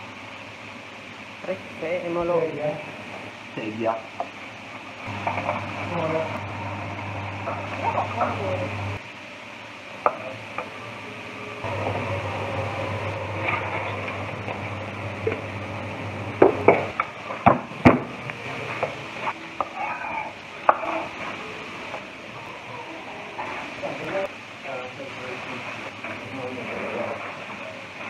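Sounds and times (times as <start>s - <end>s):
oil sizzling in a pan: 0.0s - 17.8s.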